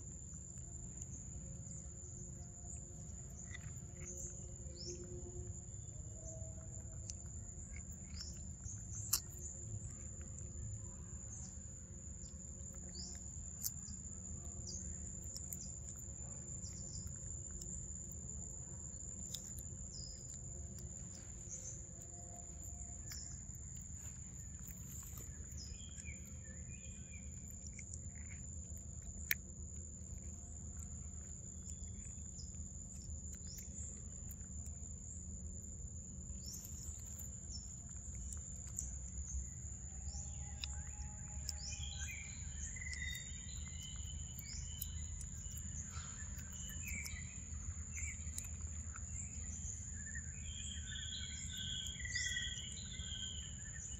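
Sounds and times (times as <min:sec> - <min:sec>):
bird chirps: 0:19.0 - 0:28.4, 0:36.3 - 0:53.9.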